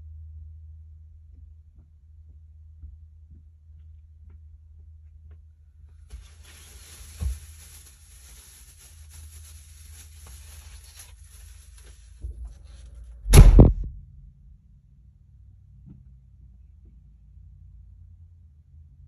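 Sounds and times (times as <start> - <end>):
steady hiss: 6.1 - 12.2
low hum: 9.4 - 15.6
loud short thump: 13.2 - 14.2.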